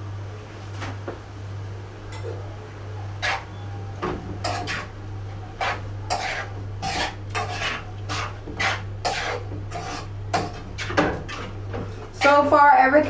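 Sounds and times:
steady low hum: 0.0s - 13.0s
spoon scraping in cooking pot: 3.2s - 3.6s, 4.4s - 4.9s, 5.6s - 12.3s.

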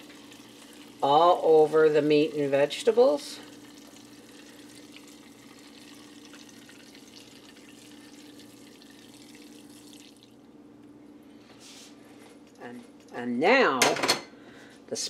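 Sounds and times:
liquid trickling and dripping: 3.4s - 10.5s.

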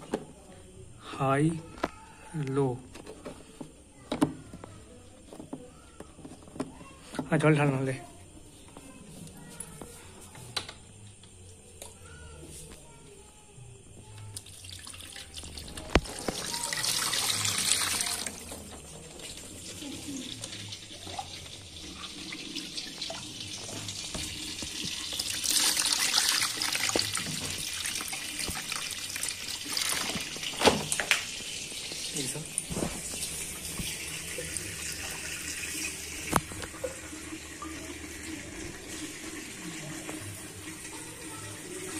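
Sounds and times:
water pouring into a tank: 14.3s - 41.9s.

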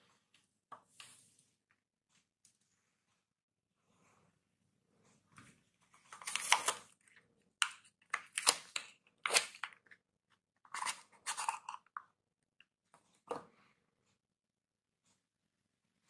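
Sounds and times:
paper wrapper tearing and crinkling: 6.1s - 6.9s, 8.2s - 9.7s.

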